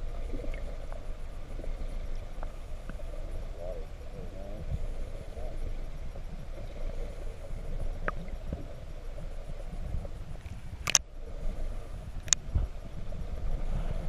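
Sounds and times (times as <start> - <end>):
underwater rumble of moving water: 0.0 - 14.0
sharp clicks: 10.8 - 11.0.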